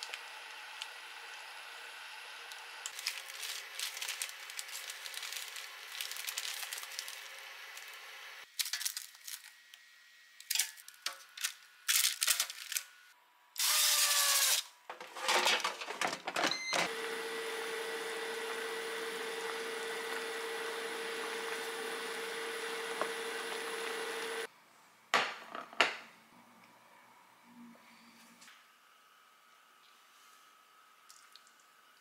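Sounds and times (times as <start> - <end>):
air fryer fan humming: 0.0 - 8.4, 14.1 - 24.5.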